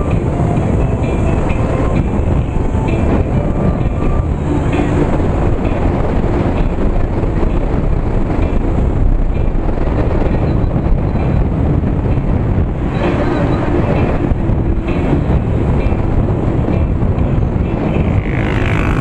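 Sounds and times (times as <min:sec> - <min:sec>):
motorcycle engine: 0:00.0 - 0:19.0
wind rush on microphone: 0:00.0 - 0:19.0.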